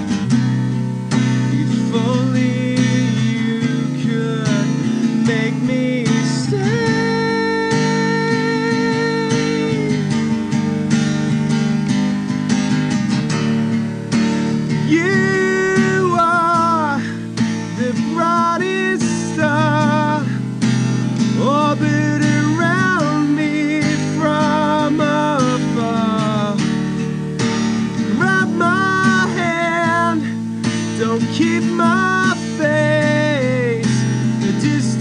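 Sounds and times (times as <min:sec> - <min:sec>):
acoustic guitar strumming: 0:00.0 - 0:35.0
person singing: 0:01.4 - 0:10.4, 0:14.6 - 0:20.4, 0:21.3 - 0:26.7, 0:28.0 - 0:30.4, 0:31.0 - 0:35.0.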